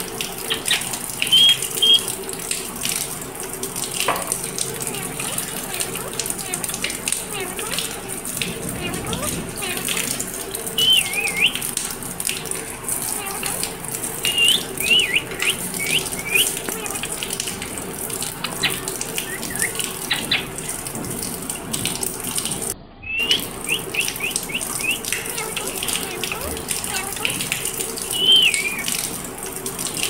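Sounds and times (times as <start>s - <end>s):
running water splashing: 0.0s - 30.0s
parakeet squeaky chirps: 0.5s - 2.1s, 10.8s - 11.6s, 14.2s - 17.1s, 18.4s - 20.5s, 23.1s - 27.3s, 28.1s - 28.9s.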